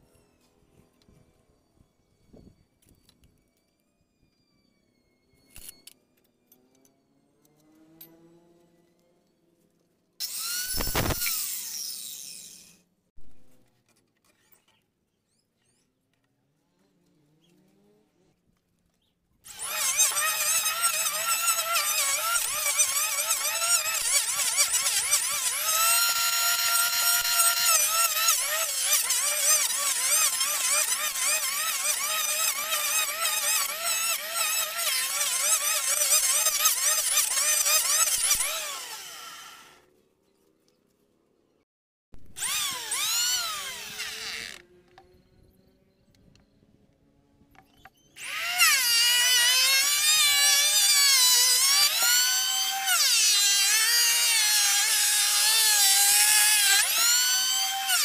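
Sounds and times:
electric planer whining on wood: 10.2 - 12.7, 19.5 - 39.8, 42.4 - 45.4, 48.2 - 58.0.

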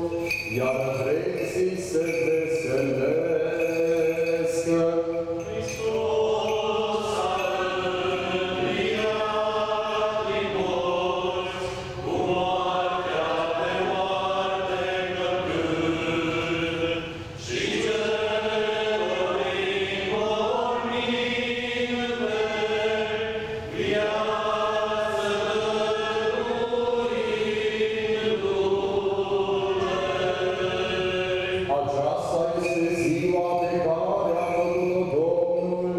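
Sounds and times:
group of voices chanting: 5.5 - 31.8.

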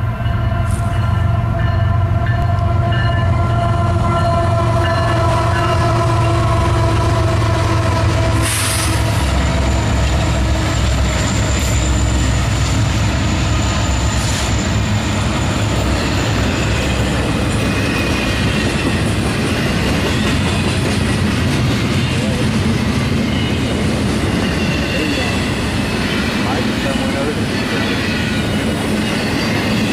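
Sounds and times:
train wheels on rails: 0.0 - 29.9
locomotive engine rumble: 2.0 - 29.9
high wheel squeal: 8.3 - 20.8, 23.2 - 29.9.

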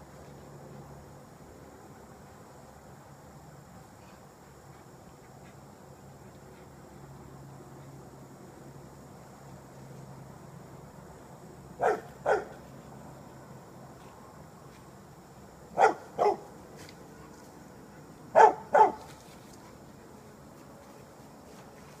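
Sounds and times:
dog barking: 11.8 - 12.6, 15.8 - 16.5, 18.3 - 19.1.

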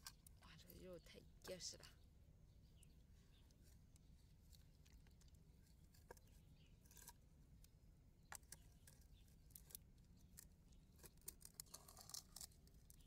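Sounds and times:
fingers clicking and scraping shell: 8.2 - 13.0.

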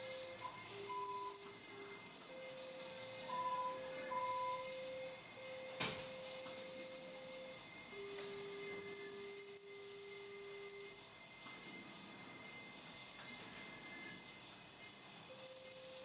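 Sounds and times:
electronic beep tone: 0.0 - 1.5, 2.4 - 9.4.

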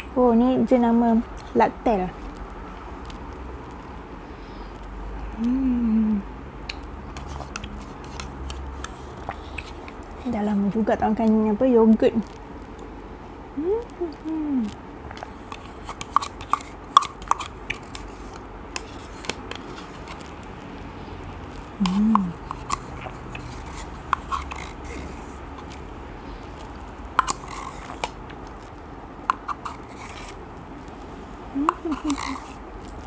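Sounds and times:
wet mouth eating sounds: 1.2 - 10.6, 11.2 - 33.0
person humming: 5.3 - 6.3, 13.6 - 14.8, 21.8 - 22.4, 31.5 - 32.4
spoon scraping plastic cup: 7.1 - 10.3, 15.3 - 20.3, 21.8 - 25.8, 27.2 - 28.2, 29.3 - 30.4, 31.6 - 32.6.

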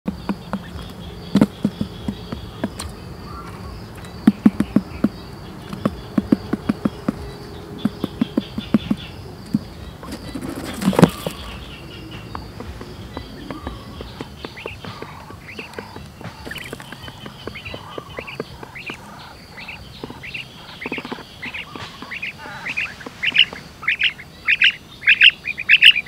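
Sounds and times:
bird pecking taps: 0.1 - 23.6
wing-flapping and scuffling: 0.1 - 24.2
high insect buzz: 0.1 - 26.0.

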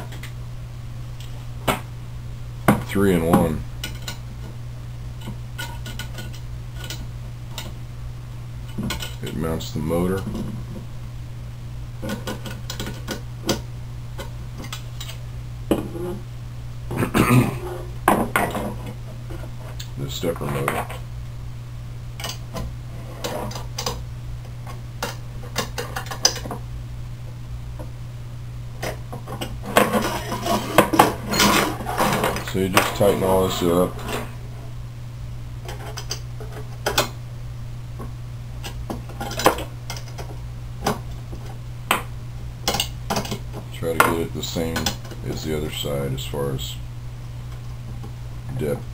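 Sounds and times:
steady low hum: 0.0 - 48.9
low hum: 26.5 - 44.4.

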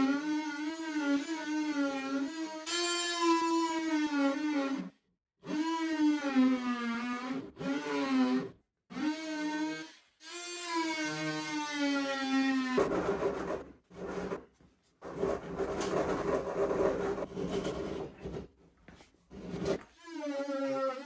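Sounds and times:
scraping and rasping on wood: 12.7 - 20.0.

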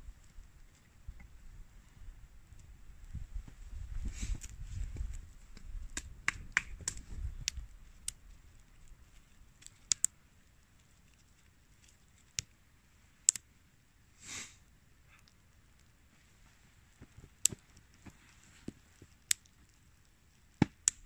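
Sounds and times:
sharp clicks and snaps: 5.6 - 10.2, 10.8 - 12.6, 13.2 - 13.5, 18.9 - 21.0.

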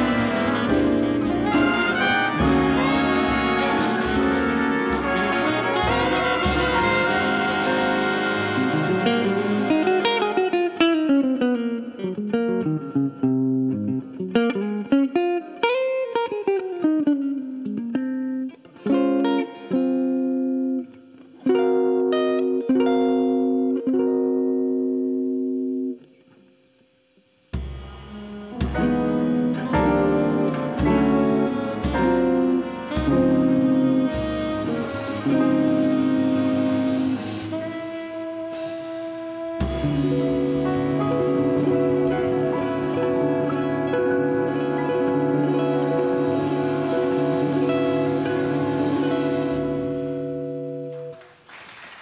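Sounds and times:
held high horn note: 0.0 - 10.7, 27.9 - 50.4
jazz guitar solo: 0.0 - 26.4, 27.8 - 51.3.

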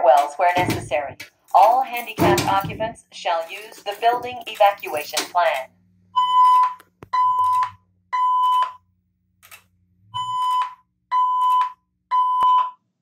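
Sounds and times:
fire alarm evacuation beeps: 6.1 - 8.8, 10.1 - 12.9.

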